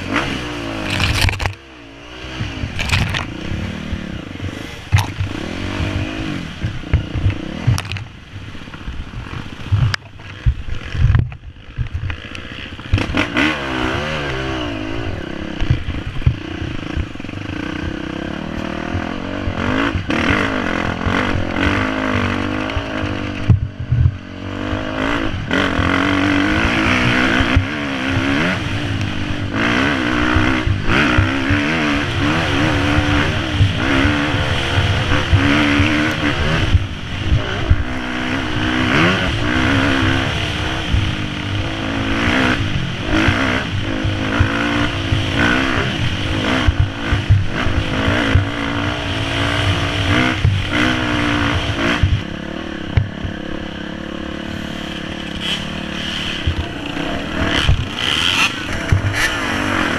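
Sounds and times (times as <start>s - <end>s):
dirt bike engine revving: 0.0s - 59.9s
bike clattering over bumps: 0.5s - 1.6s, 2.3s - 3.4s, 54.9s - 59.9s.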